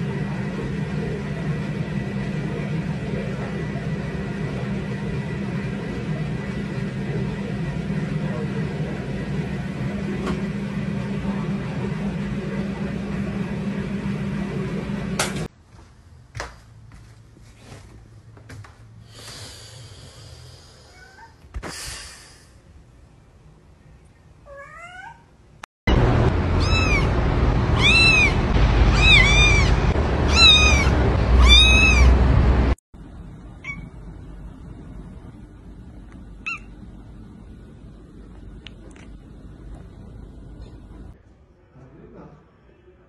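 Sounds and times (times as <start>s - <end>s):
steady low hum: 0.0s - 24.4s, 25.9s - 43.0s
cat meowing: 26.6s - 27.1s, 27.8s - 32.2s.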